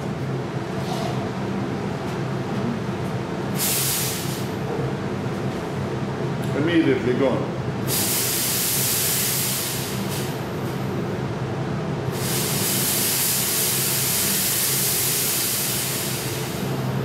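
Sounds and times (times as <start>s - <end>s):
extraction fan humming: 0.0s - 17.0s
fog machine hissing: 7.9s - 10.3s, 12.1s - 16.7s.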